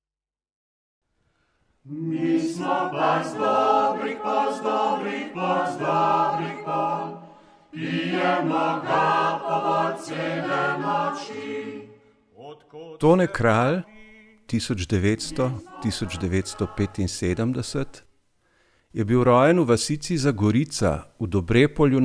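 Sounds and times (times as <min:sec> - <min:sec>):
choir singing: 0:01.8 - 0:18.0.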